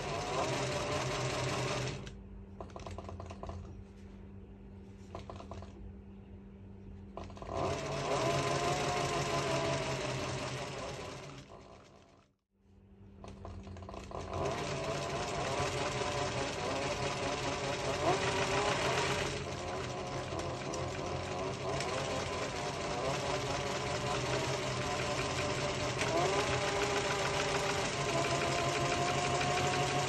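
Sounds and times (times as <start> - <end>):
sewing machine clatter: 0.0 - 4.0, 5.0 - 5.9, 7.1 - 12.4, 13.2 - 30.0
motor whine: 13.2 - 30.0.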